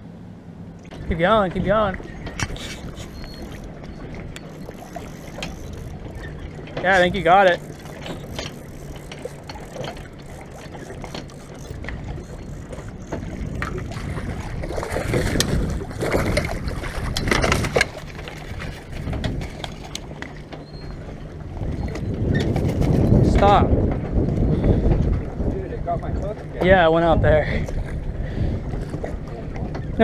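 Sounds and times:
low steady hum: 0:00.0 - 0:22.2
water splashing: 0:00.8 - 0:20.9
wind rumble: 0:00.9 - 0:30.0.

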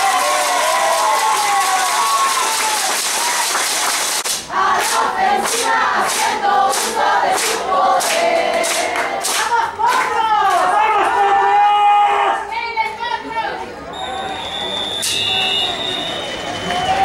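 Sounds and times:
spectators cheering: 0:00.0 - 0:04.2, 0:13.9 - 0:17.0
group chanting in rhythm: 0:04.3 - 0:10.2.

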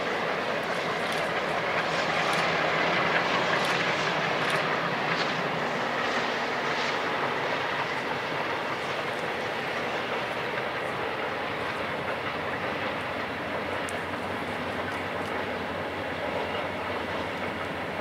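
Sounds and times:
distant freight train passing: 0:00.0 - 0:18.0.

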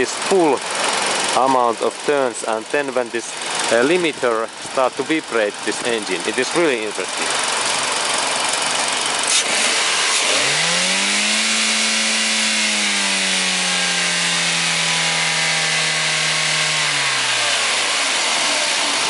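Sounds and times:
car engine revving: 0:07.1 - 0:19.0.

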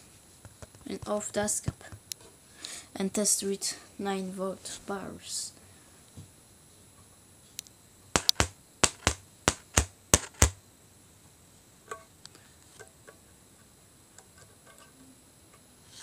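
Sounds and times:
loudspeaker cone clicking: 0:08.2 - 0:10.6.

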